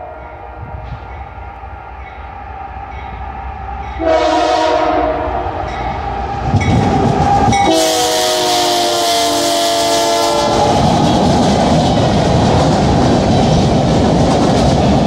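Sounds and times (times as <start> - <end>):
locomotive air horn blowing: 4.0 - 5.7, 7.6 - 10.7.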